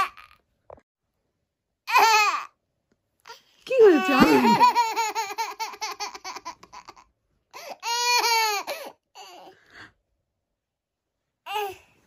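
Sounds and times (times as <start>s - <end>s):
toddler girl laughing: 3.9s - 7.0s.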